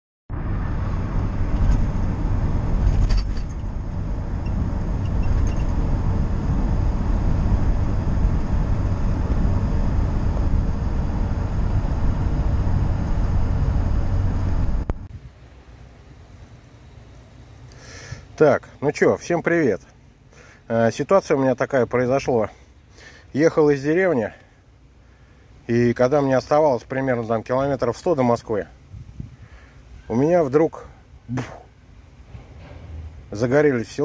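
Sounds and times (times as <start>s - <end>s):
engine and road noise in cab: 0.3s - 18.9s, 24.4s - 25.7s, 28.6s - 34.0s.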